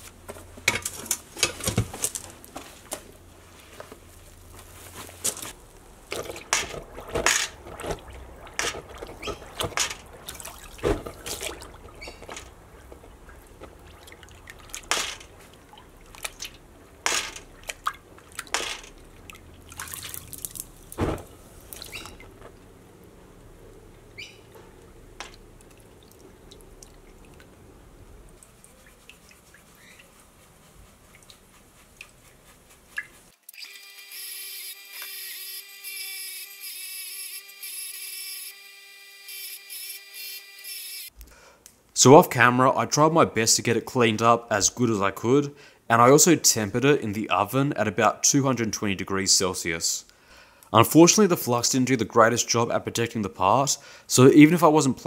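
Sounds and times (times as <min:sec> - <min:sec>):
oil sizzling and popping: 0:05.5 - 0:22.7.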